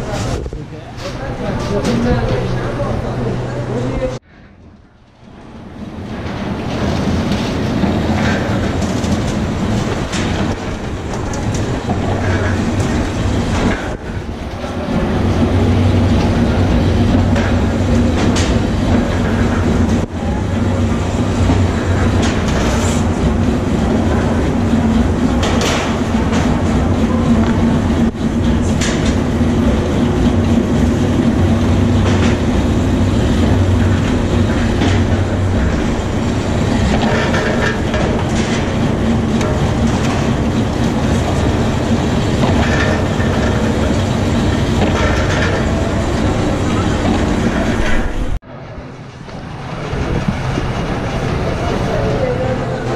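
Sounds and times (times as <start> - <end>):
factory machinery humming and rattling: 0.0 - 52.9
metal trays clanking: 21.4 - 48.4.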